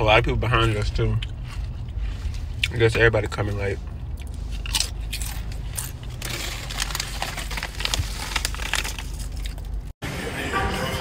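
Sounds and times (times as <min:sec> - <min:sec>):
chip bag crinkling: 0:04.6 - 0:09.9.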